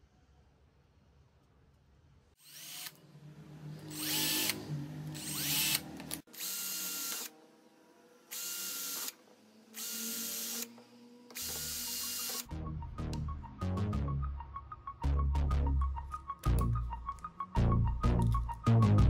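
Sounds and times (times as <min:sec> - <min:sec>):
cordless drill whining: 0:02.4 - 0:03.0, 0:03.8 - 0:07.6, 0:08.2 - 0:12.5.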